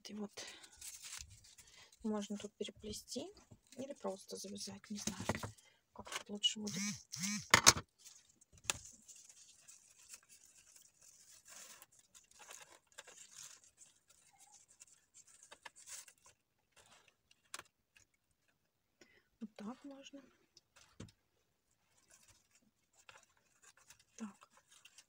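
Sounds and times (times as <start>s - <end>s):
ribbon rustling: 0.5s - 2.3s, 7.9s - 17.6s, 20.7s - 25.0s.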